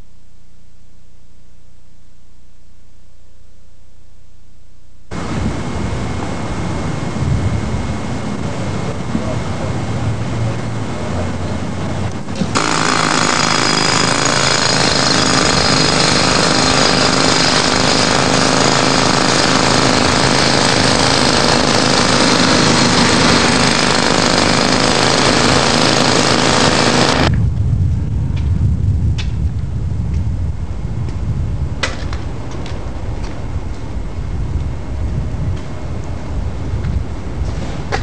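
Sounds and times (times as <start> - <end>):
low engine rumble: 5.1 - 12.6
jackhammer breaking pavement: 12.3 - 27.3.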